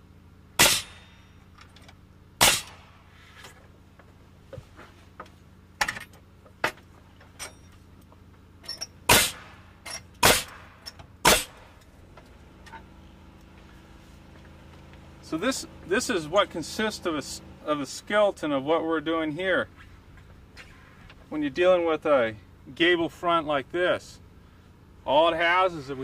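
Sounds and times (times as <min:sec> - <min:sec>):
nail gun firing: 0:00.6 - 0:01.1, 0:02.4 - 0:02.9, 0:09.1 - 0:09.6, 0:10.2 - 0:11.7.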